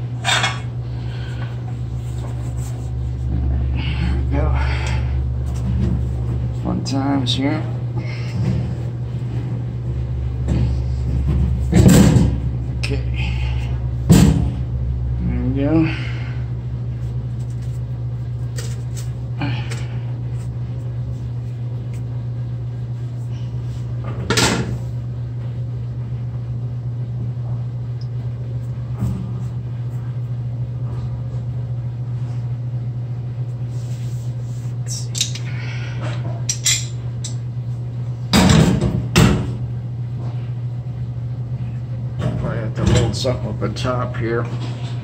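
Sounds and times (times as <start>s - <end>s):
steady low hum: 0.0s - 45.0s
tools clanking on metal pipes: 0.2s - 0.7s.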